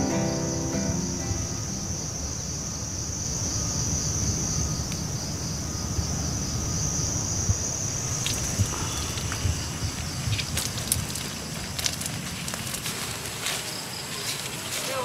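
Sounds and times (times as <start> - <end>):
high-pitched insect chirring: 0.0 - 10.6.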